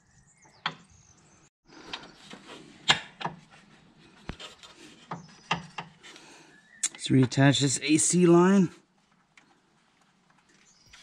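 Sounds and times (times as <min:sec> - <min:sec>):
rubbing and rustling of hoses: 0:01.8 - 0:06.2
sharp clicks and knocks: 0:04.2 - 0:06.0.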